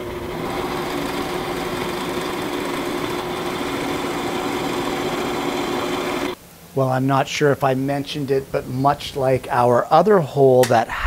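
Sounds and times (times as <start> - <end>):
electric drill boring into wood: 0.0 - 6.4.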